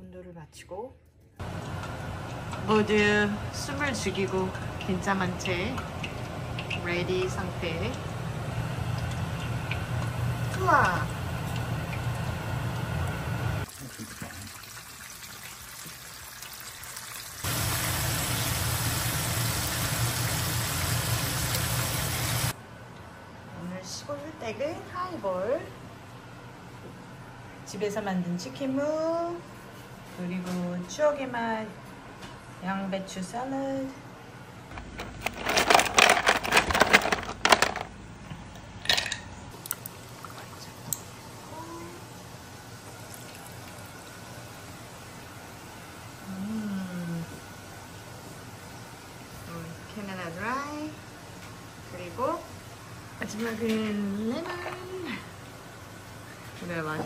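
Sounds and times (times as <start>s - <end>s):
chicken sizzling in deep-frying oil: 8.2s - 22.6s
ice cubes clattering: 34.7s - 37.9s.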